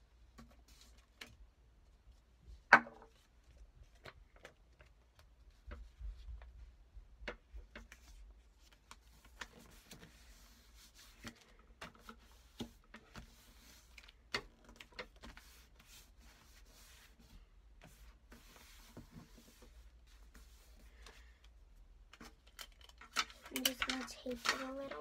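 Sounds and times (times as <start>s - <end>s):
paper rustling: 7.7s - 21.4s, 22.1s - 25.0s.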